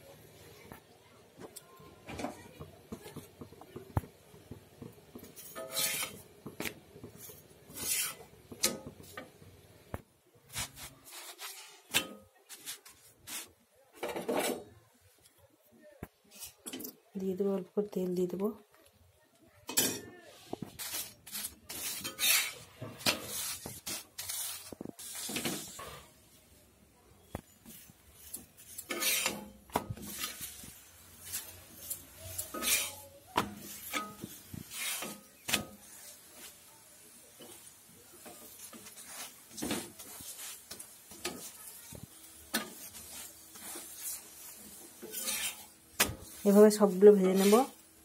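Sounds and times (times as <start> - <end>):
oil sizzling: 2.5 - 11.5, 20.7 - 26.8, 27.5 - 48.0
pad rubbing on hot griddle: 5.1 - 9.2, 10.5 - 11.9, 12.5 - 13.6, 20.4 - 26.1, 27.6 - 47.8.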